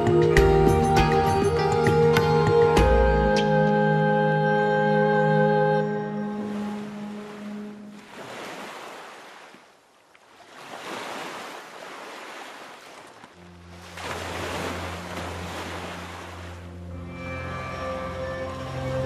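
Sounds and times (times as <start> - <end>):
low music drone: 13.4 - 19.0.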